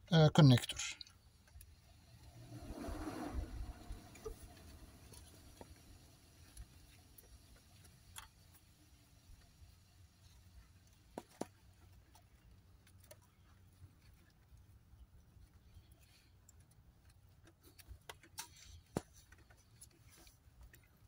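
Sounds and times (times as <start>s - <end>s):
faint clicks and taps of wires: 1.0s - 1.9s, 6.4s - 9.5s, 10.2s - 21.0s.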